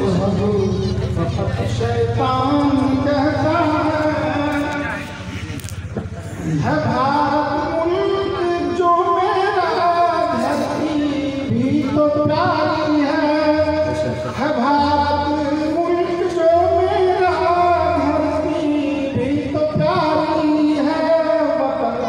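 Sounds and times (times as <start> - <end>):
person singing: 6.2 - 22.0.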